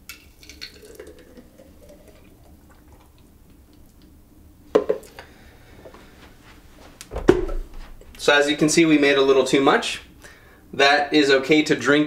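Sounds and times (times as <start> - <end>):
thick smoothie pouring: 0.0 - 4.1
quick knocks: 7.1 - 8.2.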